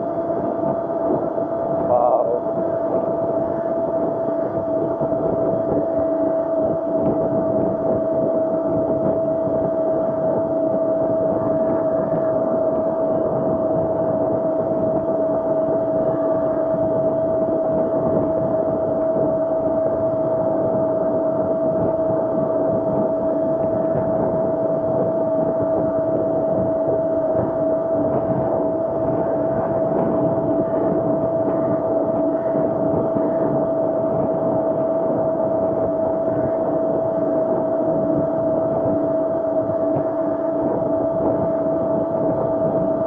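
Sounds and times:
electric motor whining: 0:00.0 - 0:43.0
wind and tyre noise: 0:00.0 - 0:43.0.

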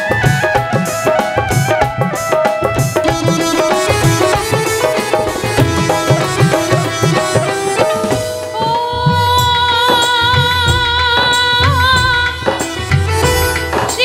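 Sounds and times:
quick instrumental melody: 0:00.0 - 0:08.9
steady drum beat: 0:00.0 - 0:14.0.

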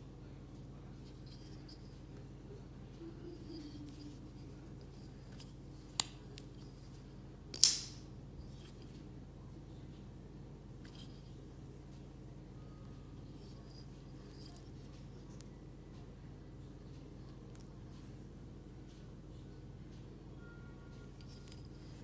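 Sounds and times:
metallic blade lock snap: 0:07.5 - 0:08.0.

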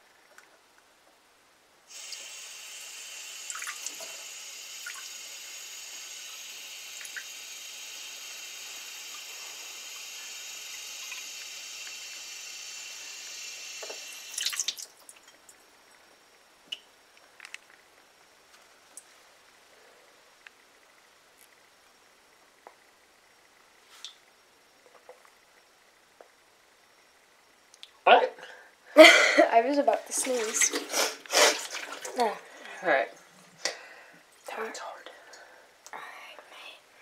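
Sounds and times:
faucet running water into mug: 0:01.9 - 0:14.9, 0:30.1 - 0:32.3.

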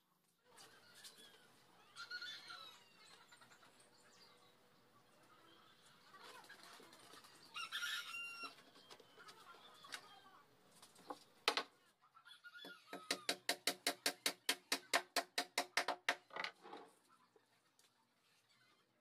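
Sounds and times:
rooster crowing: 0:07.5 - 0:08.6
hammer striking nail into wood: 0:13.0 - 0:16.3.

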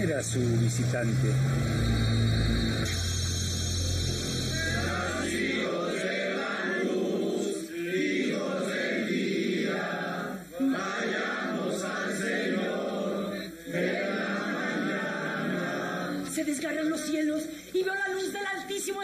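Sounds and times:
voices chanting a hymn: 0:04.0 - 0:17.0.

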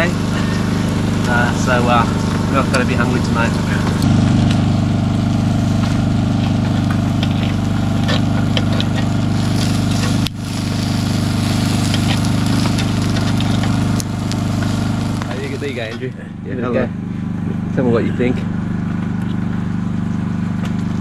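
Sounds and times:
small engine droning: 0:00.0 - 0:21.0.

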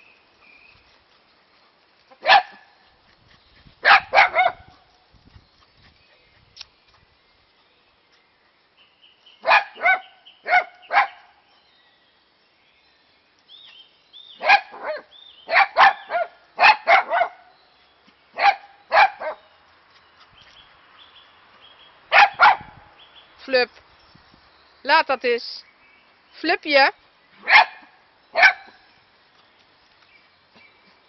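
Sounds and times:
dog barking: 0:02.2 - 0:02.7, 0:03.8 - 0:04.8, 0:09.4 - 0:11.3, 0:14.4 - 0:17.5, 0:18.4 - 0:19.4, 0:22.1 - 0:22.8, 0:27.4 - 0:28.8.

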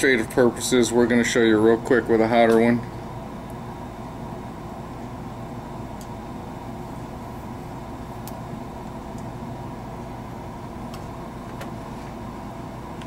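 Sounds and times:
soldering gun humming: 0:00.0 - 0:13.0.

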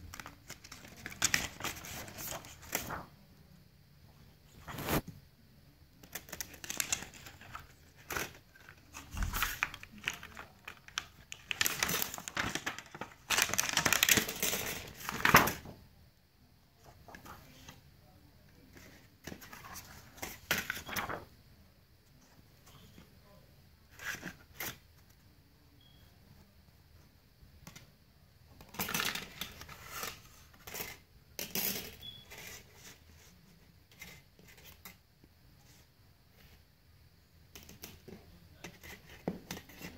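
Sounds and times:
plastic sheets rustling and clattering: 0:00.0 - 0:03.1, 0:06.0 - 0:15.8
plastic film crinkling: 0:06.2 - 0:15.4.

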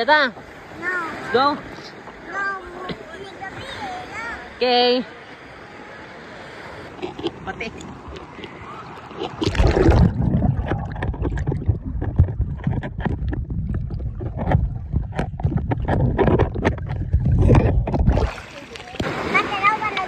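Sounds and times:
muffled underwater rumble: 0:08.0 - 0:19.0
bubbles clicking and popping: 0:09.2 - 0:18.4.

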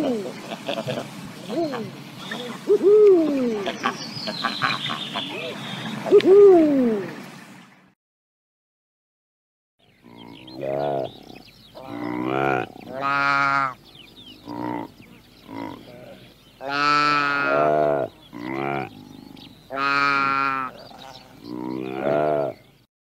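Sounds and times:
drawn-out animal calls: 0:10.0 - 0:22.6.

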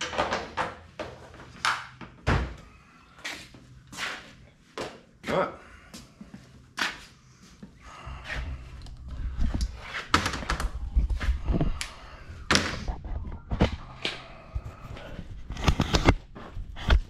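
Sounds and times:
low rumble: 0:07.9 - 0:15.5.

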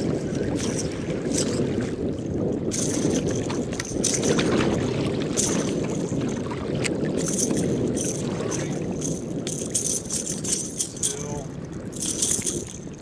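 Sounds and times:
small water splashes: 0:00.0 - 0:08.9
water lapping against kayak hull: 0:00.0 - 0:13.0.

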